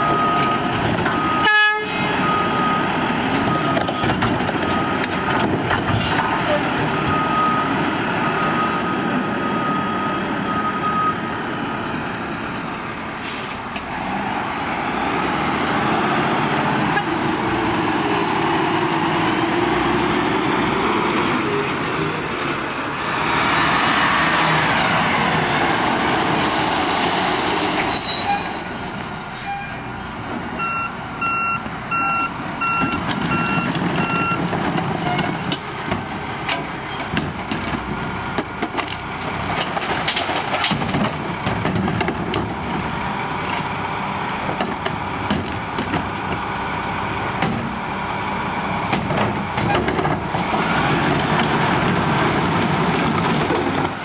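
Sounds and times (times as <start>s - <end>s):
reversing beeps: 0.0s - 1.4s, 3.5s - 5.0s, 7.0s - 11.2s, 30.6s - 34.4s
air brake hiss: 13.2s - 13.6s.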